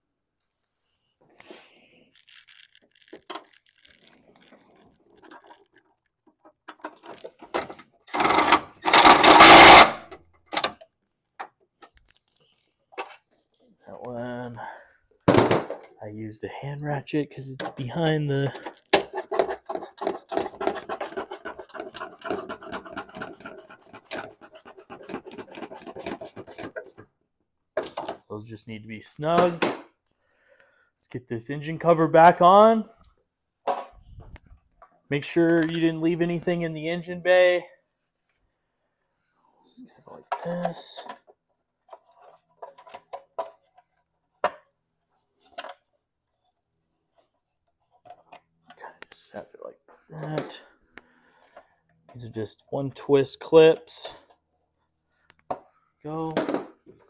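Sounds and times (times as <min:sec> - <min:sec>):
hand ratchet clicking: 0:02.2 - 0:05.8.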